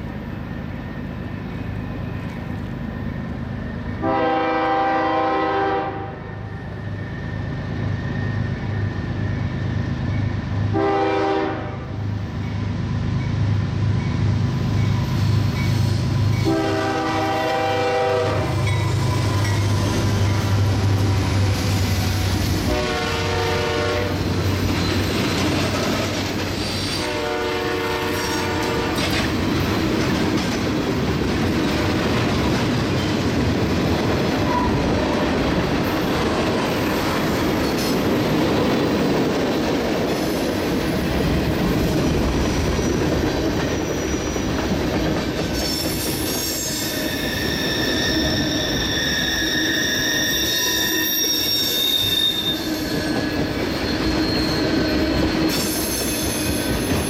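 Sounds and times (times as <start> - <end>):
locomotive horn blasts: 4.0 - 6.3, 10.7 - 12.0, 16.4 - 18.7, 22.6 - 24.2, 27.0 - 29.0
locomotive engine drone: 12.0 - 37.6
freight cars rumbling and clattering: 24.1 - 26.9, 28.4 - 45.6.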